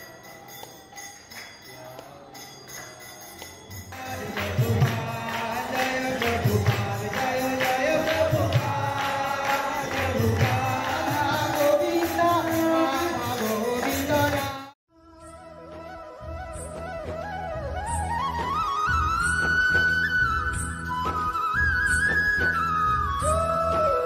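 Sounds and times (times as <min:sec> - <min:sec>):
jingling hand percussion: 0:00.0 - 0:15.5.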